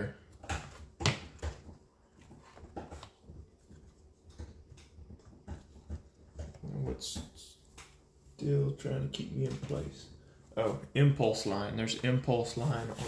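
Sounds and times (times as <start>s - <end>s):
faint taps and rustles: 0.5s - 8.0s.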